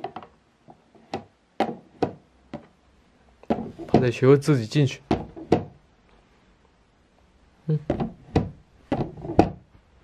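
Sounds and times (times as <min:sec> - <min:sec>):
plastic pet door flap knocking: 0:05.1 - 0:05.8, 0:07.9 - 0:09.6.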